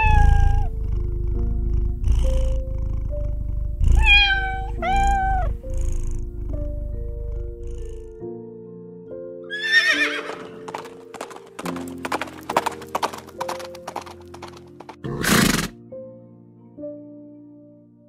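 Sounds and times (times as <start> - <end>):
soft background music: 0.0 - 18.0
horse whinnying: 4.0 - 5.5, 9.5 - 11.0, 15.0 - 15.8
hoof clip-clops: 10.2 - 15.7
horse breathy blast: 15.0 - 15.8.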